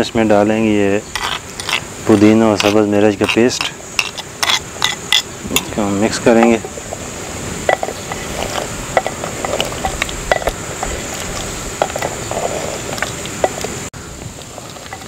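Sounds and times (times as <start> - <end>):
wooden spoon scraping a pot: 1.1 - 5.7, 7.7 - 13.8.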